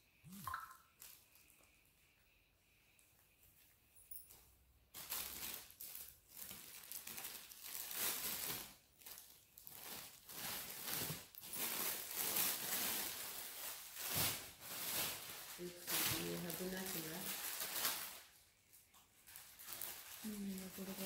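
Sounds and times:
plastic packaging crinkling: 0:04.3 - 0:21.0.

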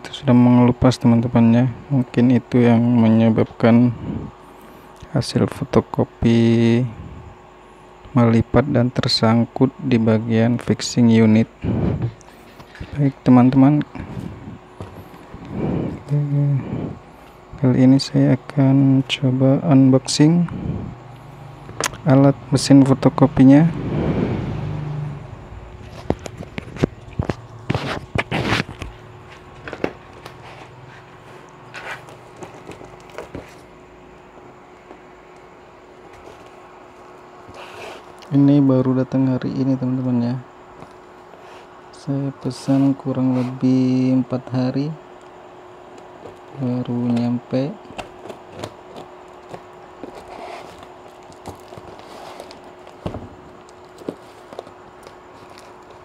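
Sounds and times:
faint steady hum: 0:00.0 - 0:56.0
parcel packaging rustling: 0:47.8 - 0:56.0
plastic wrapping crinkling: 0:48.1 - 0:56.0.

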